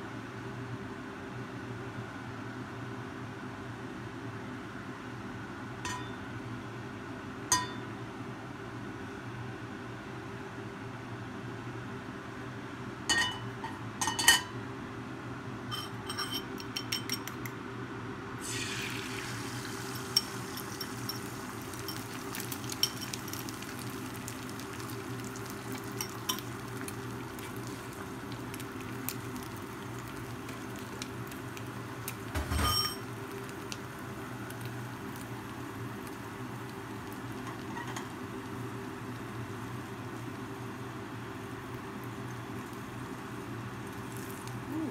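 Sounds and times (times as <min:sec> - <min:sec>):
egg sizzling in a frying pan: 0:18.4 - 0:44.8.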